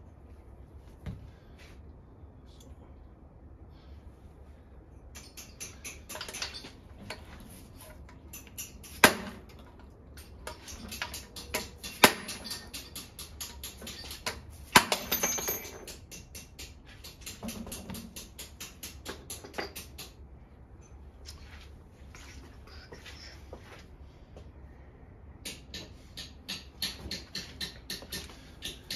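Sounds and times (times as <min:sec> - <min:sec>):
hammer tapping on metal: 0:10.5 - 0:20.2, 0:25.4 - 0:28.9
loud hammer strikes: 0:25.4 - 0:28.9.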